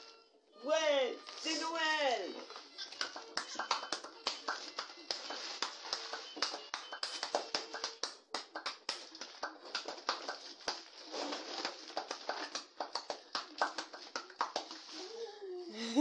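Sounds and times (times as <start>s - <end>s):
gift wrap crinkling and tearing: 2.3s - 8.0s, 8.9s - 15.2s.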